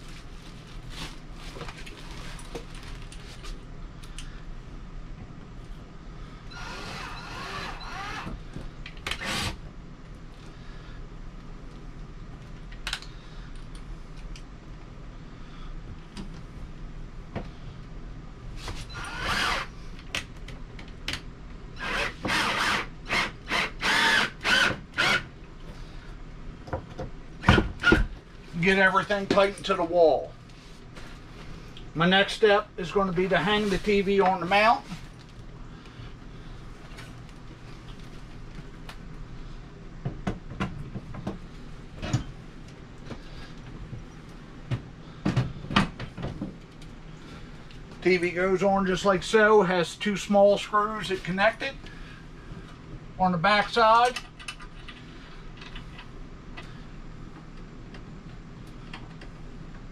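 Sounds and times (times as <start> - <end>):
power drill driving screws: 6.5 - 8.4, 9.1 - 9.6, 18.9 - 19.7, 21.8 - 25.3.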